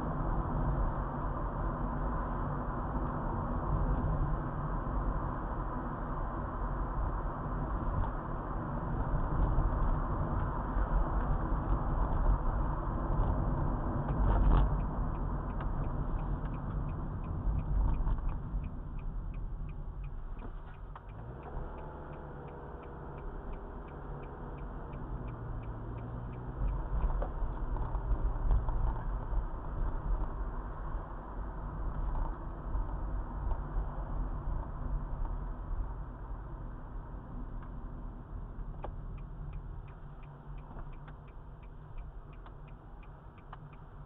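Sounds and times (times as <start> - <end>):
car road and engine noise: 0.0 - 44.0
turn signal clicking: 14.1 - 30.4, 38.5 - 44.0.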